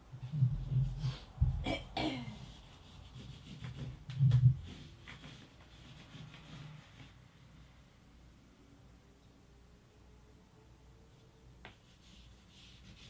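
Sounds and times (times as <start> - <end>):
graphite scratching on paper: 2.3 - 7.3, 11.8 - 13.0.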